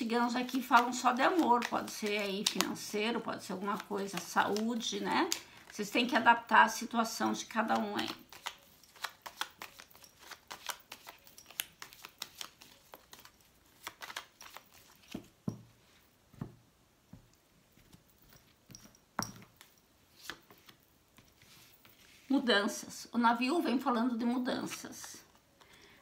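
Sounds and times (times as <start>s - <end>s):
cards being shuffled: 0.2s - 6.2s, 7.0s - 15.4s, 19.4s - 22.3s.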